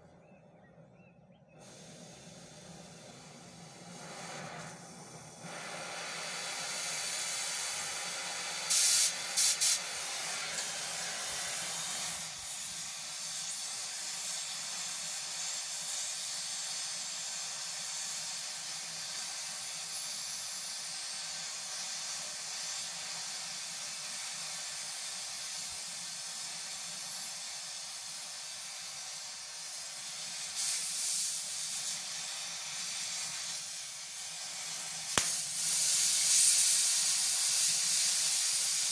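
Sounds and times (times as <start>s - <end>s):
gas torch flame hissing: 1.6s - 38.9s.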